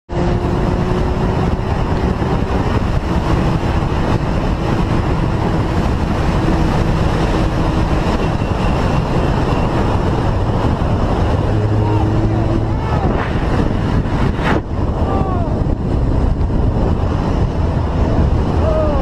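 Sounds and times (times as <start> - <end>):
motorcycle engine running: 0.1 - 14.9
wind rushing over microphone: 0.1 - 19.0.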